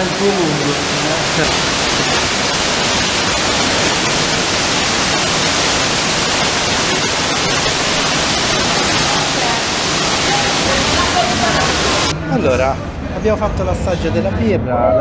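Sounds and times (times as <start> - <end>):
water sheet falling rushing hiss: 0.0 - 12.1.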